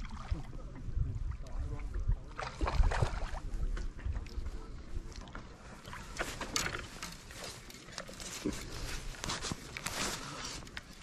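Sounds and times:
water splashing: 0.0s - 3.8s
wind rumbling on microphone: 0.0s - 7.6s.

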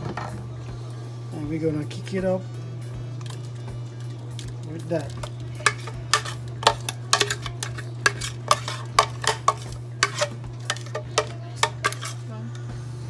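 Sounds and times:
marinade being scraped: 4.4s - 12.3s
utensil clinking against metal pot: 4.7s - 12.2s.

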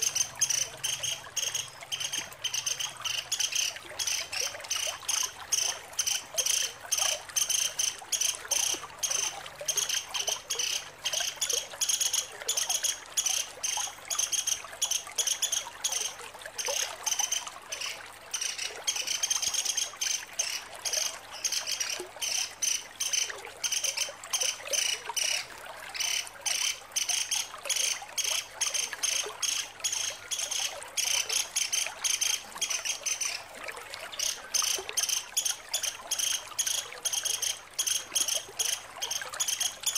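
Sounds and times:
woodpecker rattling chatter: 0.0s - 23.9s, 26.0s - 33.4s.

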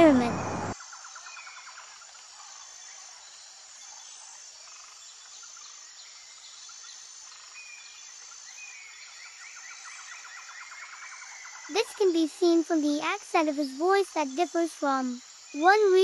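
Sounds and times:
steady high hiss: 0.0s - 0.8s.

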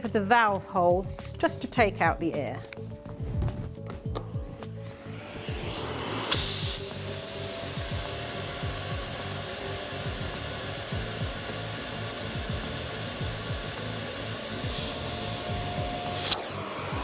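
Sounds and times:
vacuum cleaner running: 4.8s - 17.0s.

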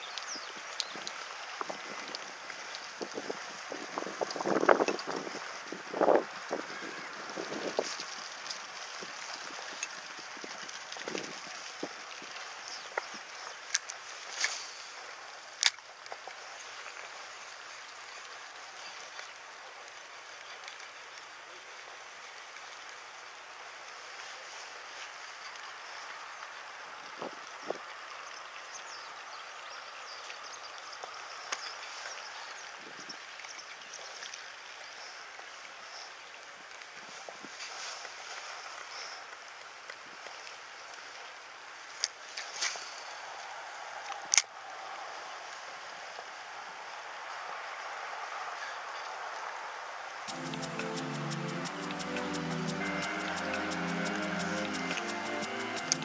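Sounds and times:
outdoor background hiss: 49.2s - 56.0s.

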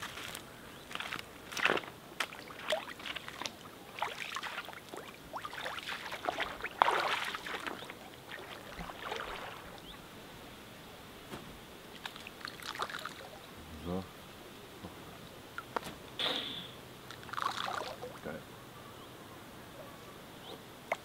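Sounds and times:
footsteps wading through water: 0.0s - 10.1s, 11.9s - 13.4s.

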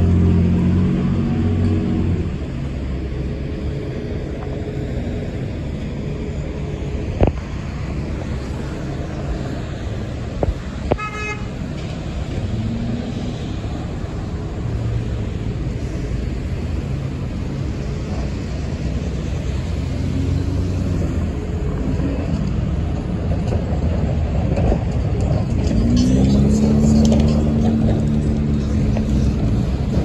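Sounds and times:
heavy vehicle engine humming: 0.0s - 30.0s
road noise: 0.0s - 30.0s
vehicle horn toot: 11.0s - 11.5s.

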